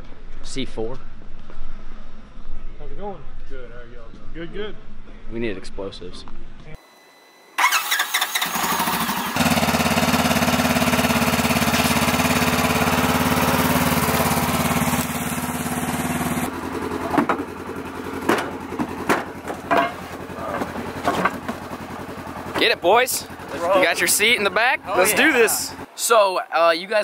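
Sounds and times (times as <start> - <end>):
engine idling: 7.6 - 25.9
knocks and clunks: 17.0 - 17.5, 18.2 - 21.7.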